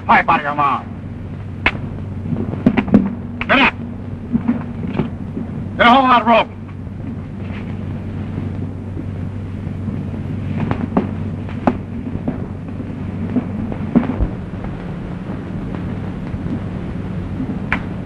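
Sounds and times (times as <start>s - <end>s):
film soundtrack hum and hiss: 0.0s - 18.0s
sharp clicks and knocks: 17.7s - 17.9s.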